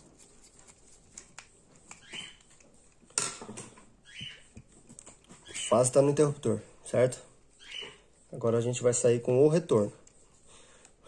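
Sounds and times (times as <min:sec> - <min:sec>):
soft rustles: 0:00.0 - 0:03.0.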